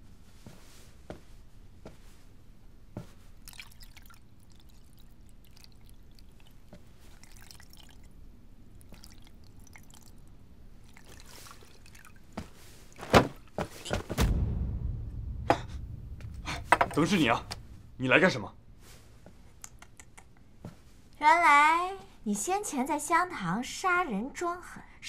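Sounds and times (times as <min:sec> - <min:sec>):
low steady background: 0:00.0 - 0:25.0
heavy thump: 0:13.1 - 0:19.5
sharp knocks: 0:13.9 - 0:17.8.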